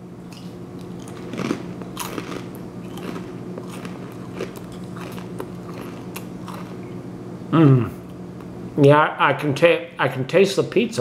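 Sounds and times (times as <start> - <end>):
crunchy snack being chewed: 0.3 - 7.0.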